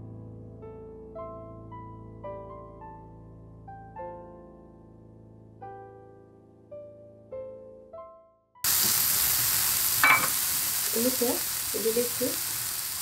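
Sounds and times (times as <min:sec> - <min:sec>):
mushrooms sizzling in a pan: 0:08.6 - 0:13.0
utensil knocking a pan: 0:10.0 - 0:10.5.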